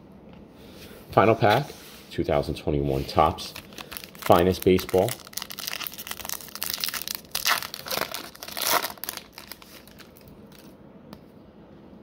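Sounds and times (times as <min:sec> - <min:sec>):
foil wrapper crinkling and tearing: 0:03.4 - 0:10.7.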